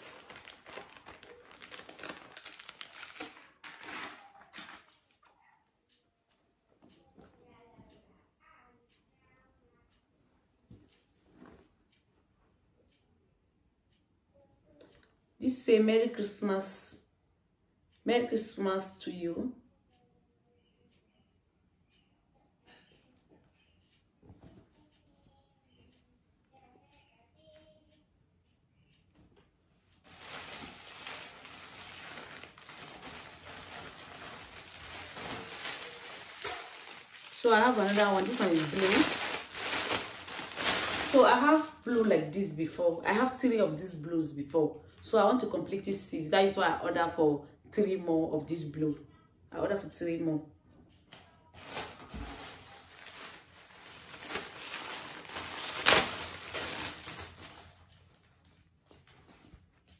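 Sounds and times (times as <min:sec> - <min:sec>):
plastic bags crinkling: 0:00.0 - 0:05.0, 0:30.0 - 0:43.3, 0:51.5 - 0:59.4
loud sharp plastic crackle: 0:00.0 - 0:05.2, 0:30.0 - 0:42.3, 0:51.5 - 0:59.1.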